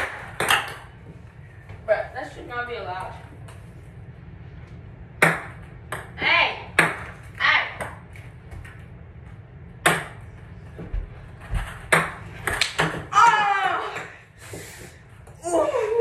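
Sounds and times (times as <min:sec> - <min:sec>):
ping pong ball knocking: 0:00.0 - 0:00.9, 0:05.2 - 0:06.2, 0:09.8 - 0:10.2.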